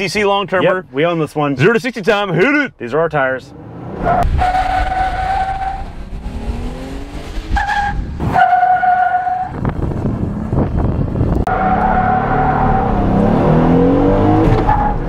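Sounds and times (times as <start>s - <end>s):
engine accelerating hard: 5.8s - 8.0s, 9.7s - 14.7s.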